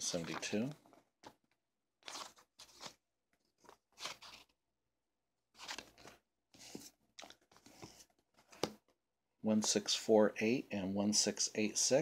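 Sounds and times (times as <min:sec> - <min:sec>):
book pages rustling: 0:00.0 - 0:04.6, 0:05.5 - 0:08.9.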